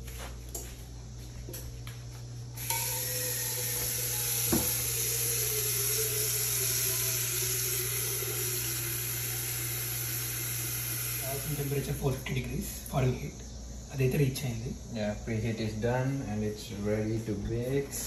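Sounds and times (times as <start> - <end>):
tap water pouring into metal pot: 2.6 - 11.7.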